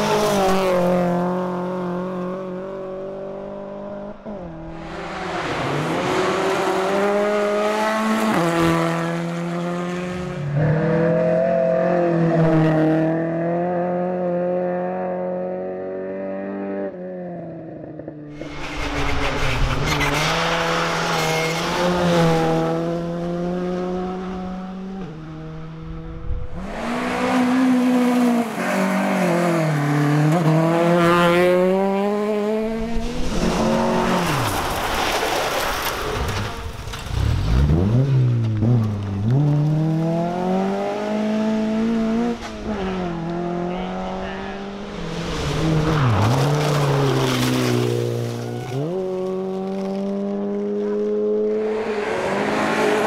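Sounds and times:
rally car engines revving: 0.0 - 53.0
hiss of gravel and tyres: 32.9 - 37.2.

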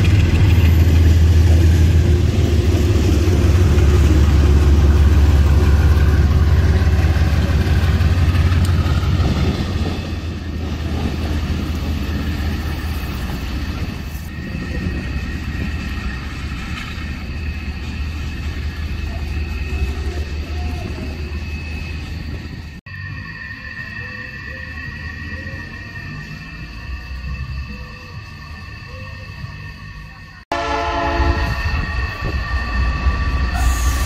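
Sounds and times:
locomotive engine rumble: 0.0 - 34.0.

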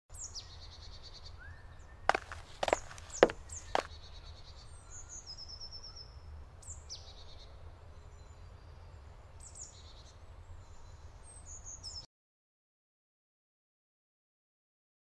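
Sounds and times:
songbirds chirping and trilling: 0.1 - 12.1.

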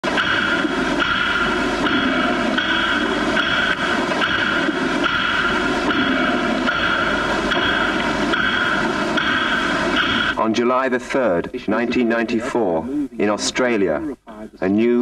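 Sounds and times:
didgeridoo drone: 0.0 - 10.4.

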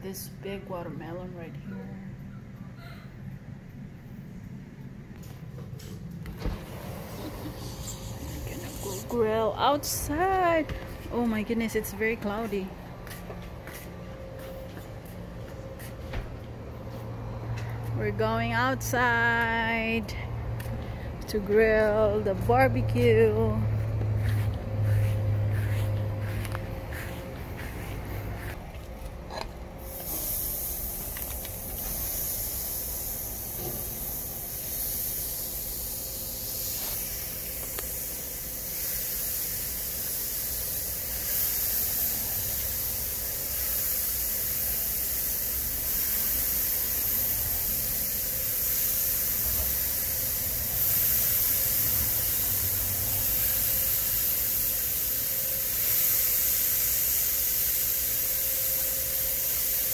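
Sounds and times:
meat sizzling on a grill: 37.9 - 59.9.

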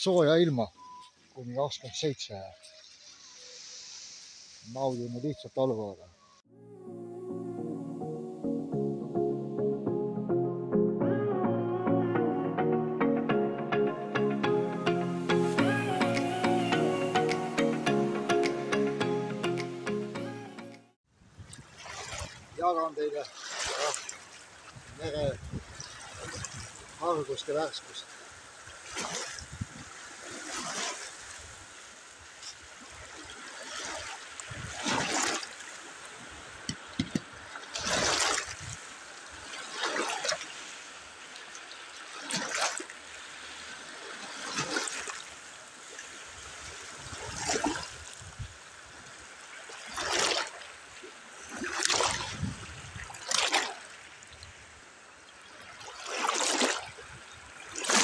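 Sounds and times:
waves splashing over stones: 1.2 - 6.0, 21.6 - 58.0.

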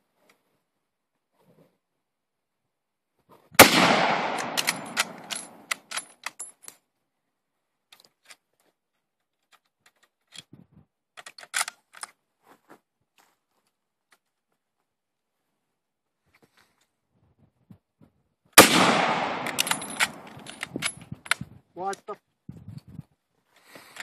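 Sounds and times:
rifle shot echoing: 3.6 - 5.7, 18.6 - 20.6
metallic clicks of rifle handling: 3.8 - 6.8, 7.9 - 10.5, 11.1 - 12.2, 18.7 - 22.0.

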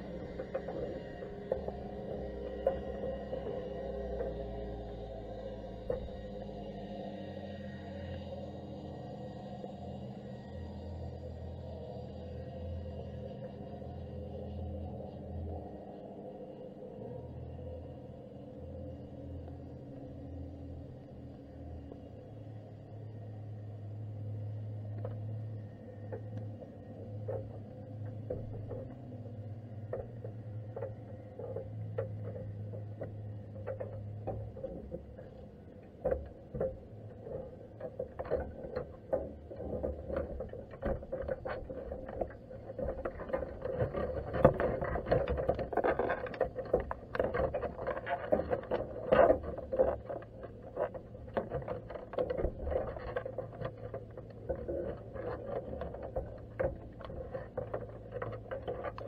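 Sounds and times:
muffled underwater clicks and knocks: 0.0 - 7.4, 24.2 - 59.0
low steady hum: 0.0 - 59.0.

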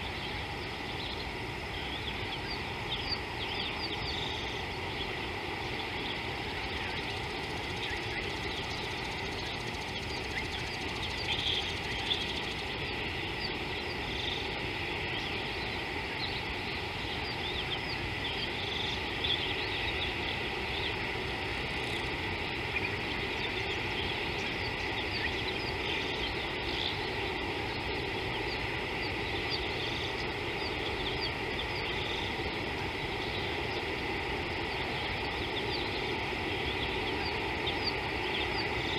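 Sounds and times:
insects and birds chirping: 0.0 - 38.9
low background hiss: 0.0 - 38.9.

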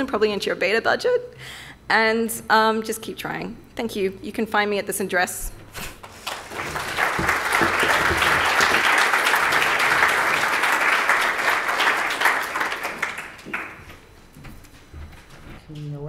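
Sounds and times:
audience applauding: 6.0 - 14.0.

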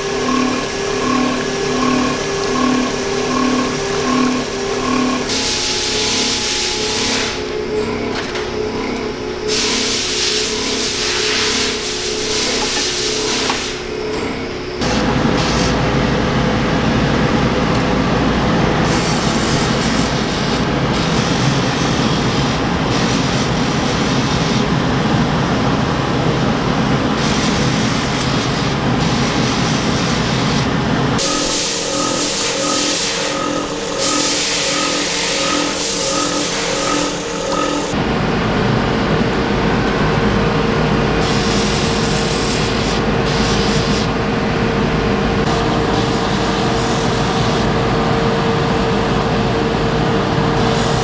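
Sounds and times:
grinding wheel grinding metal: 0.0 - 9.5, 31.2 - 38.0
factory machine hum: 0.0 - 51.0.

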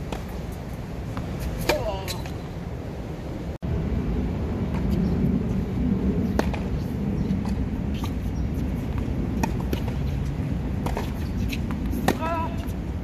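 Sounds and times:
tennis ball bouncing: 0.0 - 2.4, 6.2 - 12.9
tennis racket striking ball: 1.2 - 2.4, 10.8 - 12.7.

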